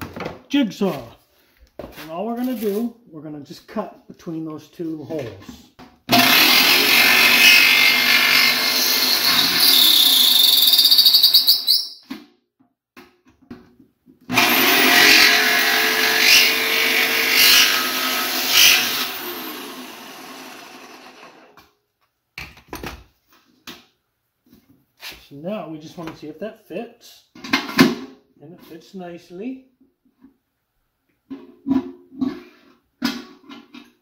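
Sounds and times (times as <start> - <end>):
jigsaw cutting metal: 6.1 - 11.2, 14.3 - 21.6.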